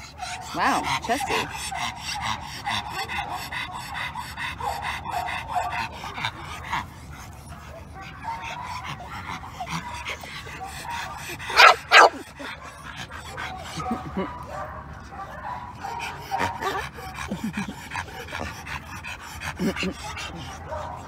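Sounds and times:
dogs panting and sniffing: 0.0s - 21.0s
dog barks: 7.9s - 12.2s, 13.4s - 16.8s.

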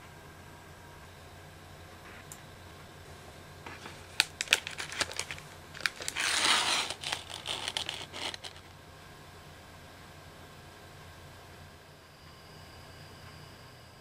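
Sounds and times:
plastic bag crinkling: 3.8s - 8.7s
sharp clicks and crackles: 3.8s - 8.7s.

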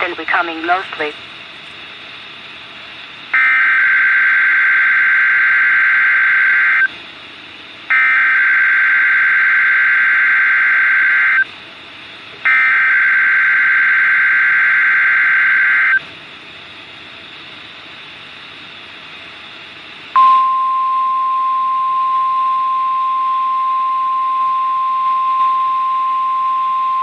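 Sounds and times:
buzzing digital data tones: 3.4s - 6.9s, 7.9s - 11.5s, 12.5s - 16.0s.

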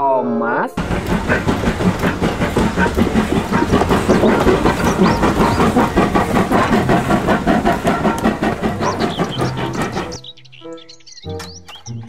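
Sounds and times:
steam hissing: 0.8s - 10.2s
steam locomotive wheels clattering: 0.8s - 10.2s.

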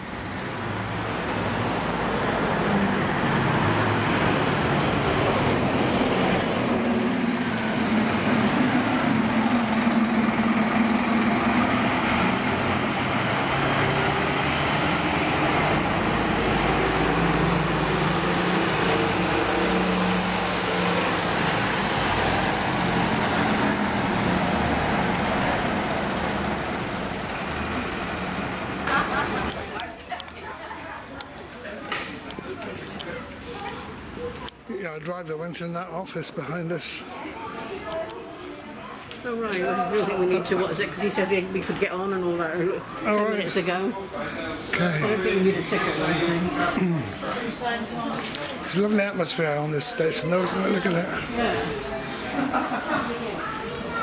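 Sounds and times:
diesel bus engines idling: 0.0s - 35.5s, 39.7s - 54.0s.

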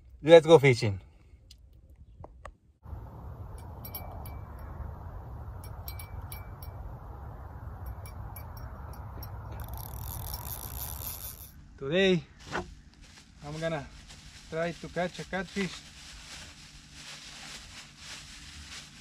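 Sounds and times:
wind noise on microphone: 2.9s - 11.5s
small bell jingling: 3.1s - 11.5s.

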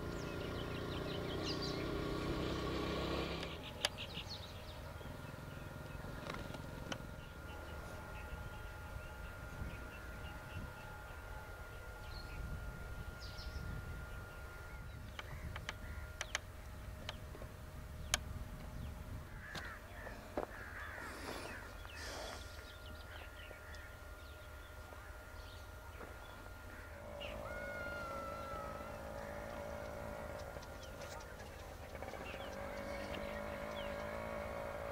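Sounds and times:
bird calls: 0.0s - 34.9s
faint steady whine: 0.0s - 34.9s
low wind rumble: 3.6s - 34.9s
sharp clicks: 15.1s - 17.2s.

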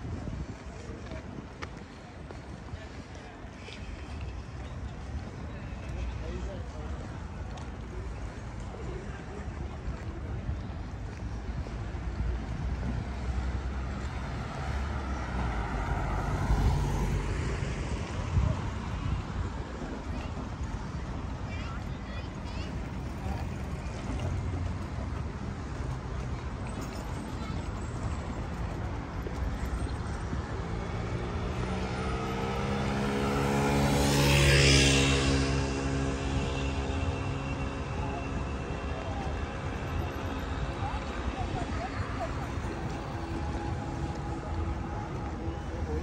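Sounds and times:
passing engine: 12.4s - 46.0s.

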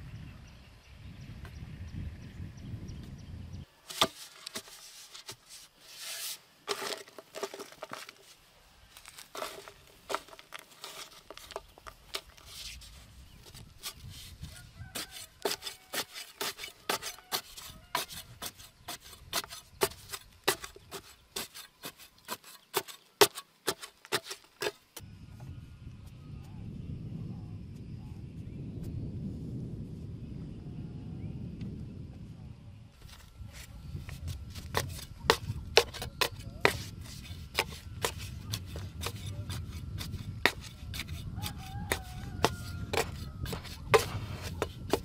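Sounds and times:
trowel striking stony soil: 3.9s - 8.3s, 9.0s - 12.8s, 13.5s - 24.8s, 33.1s - 45.0s.

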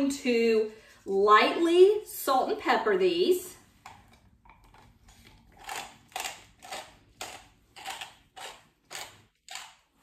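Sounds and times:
pepper mill grinding: 4.8s - 10.0s.

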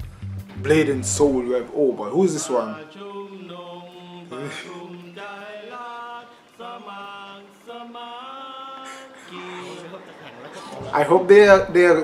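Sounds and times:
men singing slow tune: 2.0s - 11.3s.

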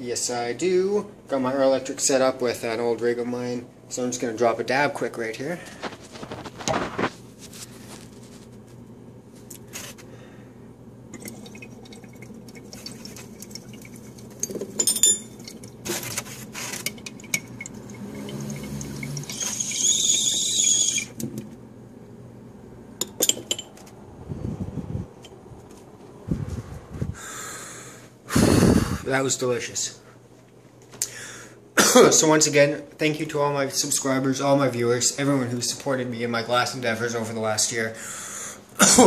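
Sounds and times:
water bubbling: 11.2s - 14.4s.

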